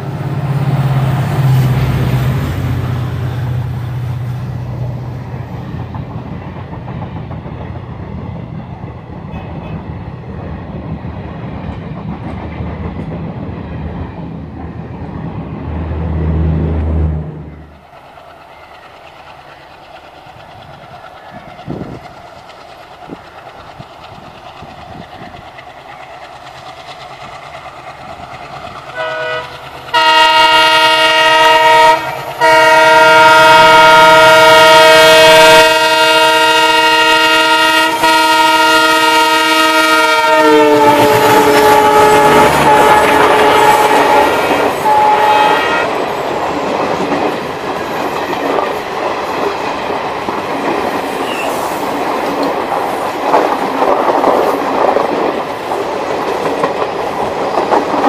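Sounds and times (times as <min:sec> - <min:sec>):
train wheels clattering on rails: 0:00.0 - 0:16.2, 0:17.6 - 0:58.0
locomotive horn: 0:28.9 - 0:46.0.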